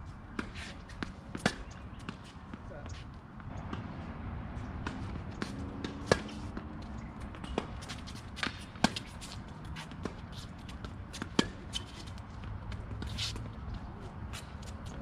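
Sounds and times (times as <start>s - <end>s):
racket hitting tennis ball: 0.3s - 2.2s, 4.8s - 6.7s, 7.3s - 12.0s
distant racket hits: 0.3s - 2.6s, 3.4s - 14.6s
tennis ball bouncing: 0.3s - 2.6s, 3.4s - 13.8s.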